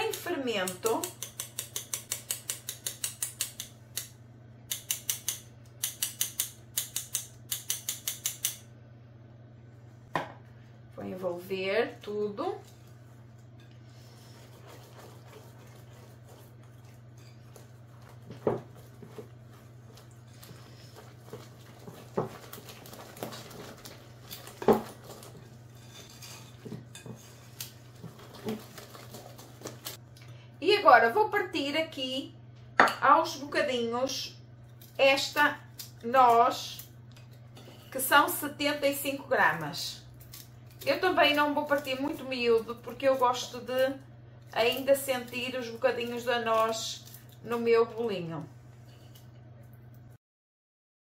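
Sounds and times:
whisk stirring batter: 12.6s - 30.0s.

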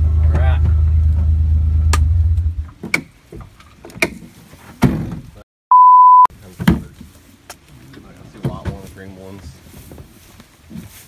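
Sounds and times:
sharp thunks: 1.9s - 5.4s
censor bleep: 5.7s - 6.3s.

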